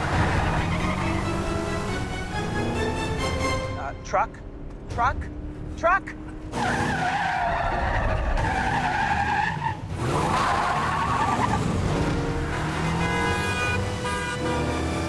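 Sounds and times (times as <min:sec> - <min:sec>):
engine rumbling: 0:00.0 - 0:15.0
tyres squealing: 0:06.6 - 0:11.7.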